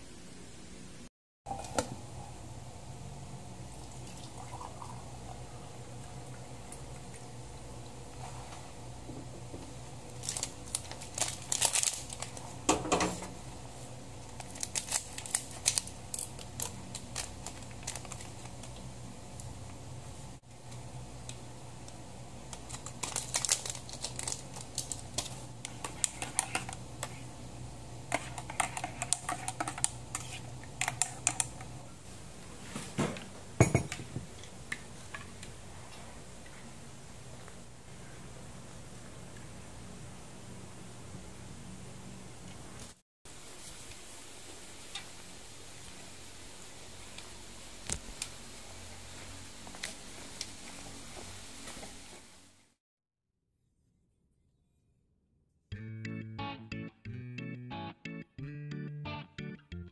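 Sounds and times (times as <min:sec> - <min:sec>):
plastic suit crinkling: 0:10.2 - 0:12.5, 0:22.6 - 0:25.4
paper sachet handling: 0:10.2 - 0:12.6, 0:14.3 - 0:18.8, 0:22.6 - 0:26.8
stirring in ceramic mug: 0:25.7 - 0:27.2, 0:28.1 - 0:31.4.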